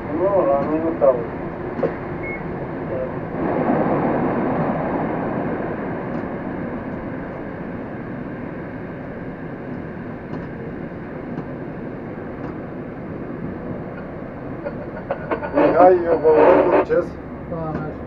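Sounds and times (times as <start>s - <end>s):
train wheels on rail in tunnel: 0.0s - 18.0s.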